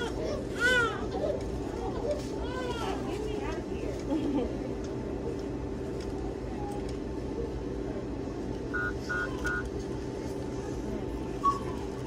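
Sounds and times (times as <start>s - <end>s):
steady low hum: 0.0s - 12.0s
short electronic beeps: 8.8s - 9.6s.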